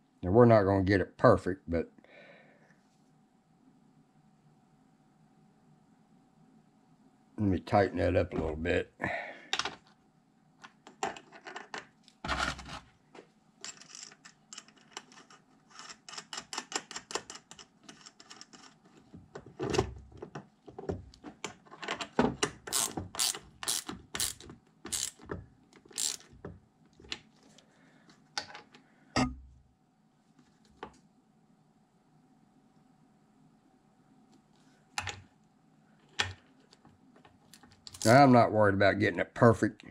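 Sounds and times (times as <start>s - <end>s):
ratchet wrench clicking: 22.7s - 25.2s, 25.9s - 26.3s.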